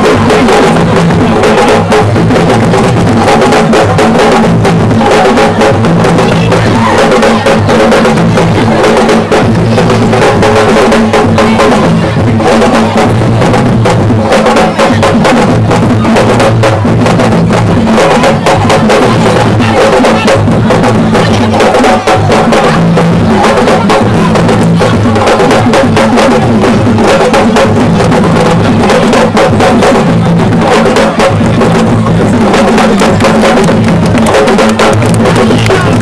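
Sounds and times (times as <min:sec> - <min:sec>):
drum-driven music with deep bass: 0:00.0 - 0:36.0.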